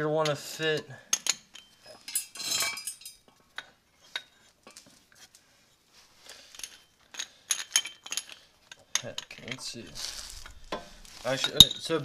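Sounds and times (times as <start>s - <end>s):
metal clinks and scrapes: 1.1s - 5.4s, 6.1s - 12.0s.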